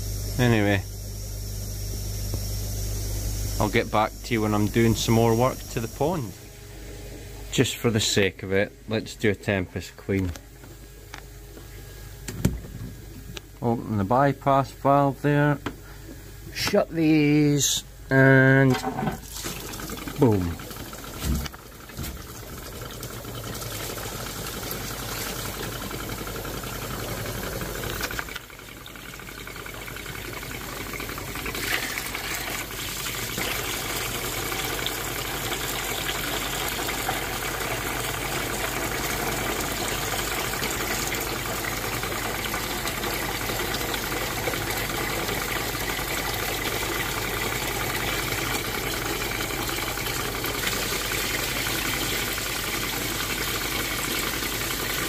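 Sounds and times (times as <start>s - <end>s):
water rushing out of pond filter: 3.4s - 6.4s, 16.6s - 55.0s.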